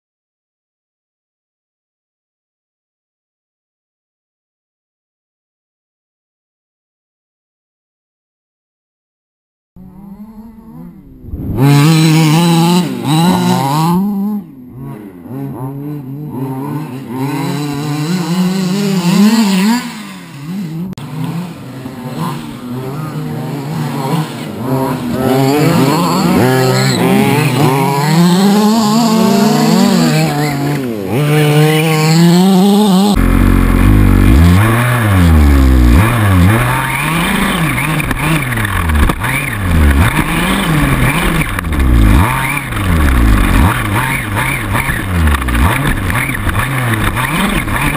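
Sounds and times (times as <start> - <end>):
small two-stroke engines revving: 9.8 - 47.9.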